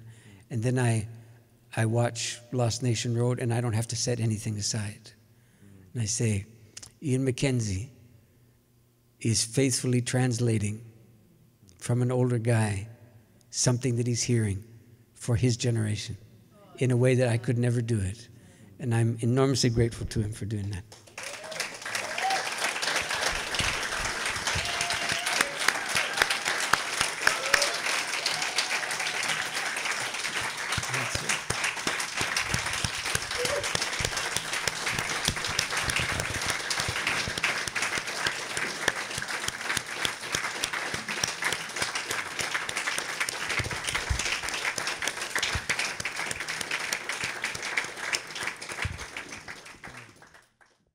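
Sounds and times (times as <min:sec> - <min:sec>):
audience applauding: 0:20.9 - 0:50.8.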